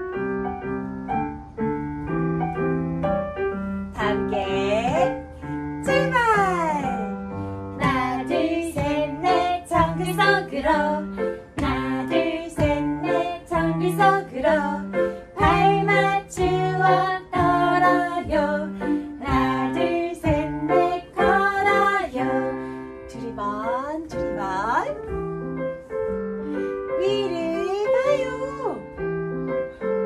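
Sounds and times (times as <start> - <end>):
women singing: 7.8 - 24.8.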